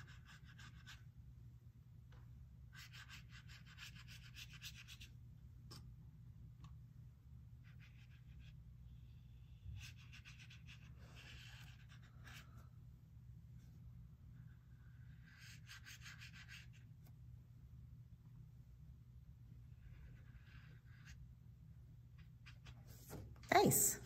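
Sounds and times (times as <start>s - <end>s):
low steady hum: 0.0s - 24.0s
brush dabbing on paper: 9.4s - 12.7s.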